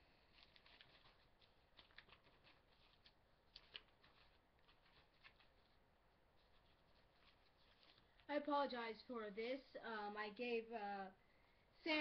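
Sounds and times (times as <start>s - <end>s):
binder pages rustling and flipping: 0.0s - 5.8s, 6.4s - 8.4s.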